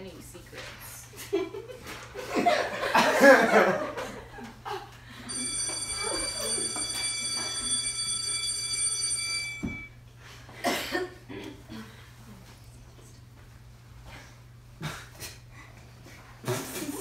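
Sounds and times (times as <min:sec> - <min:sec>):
high electronic ringing tone: 0:05.3 - 0:10.0.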